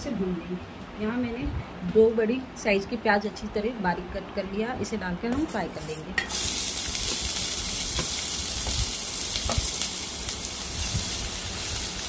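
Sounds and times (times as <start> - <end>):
onions sizzling in oil: 6.2 - 12.0.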